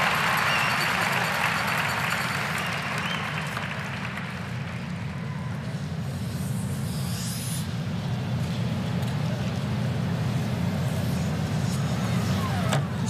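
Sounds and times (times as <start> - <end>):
crowd applauding: 0.0 - 5.2.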